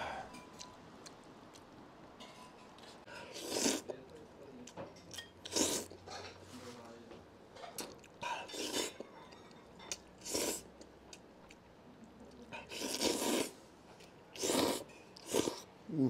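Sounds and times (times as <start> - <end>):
person slurping noodles: 3.2 - 3.9, 5.5 - 5.9, 10.2 - 10.6, 12.6 - 13.6, 14.4 - 16.0.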